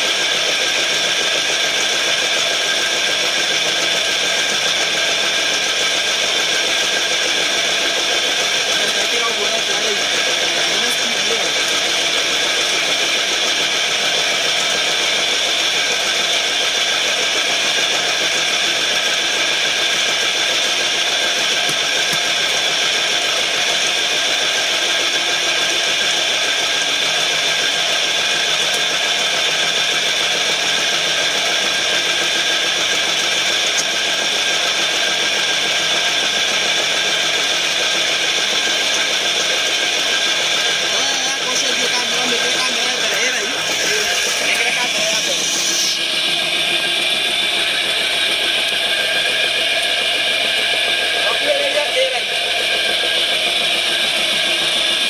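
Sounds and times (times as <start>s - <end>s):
electric motor high-pitched whine: 0.0s - 55.0s.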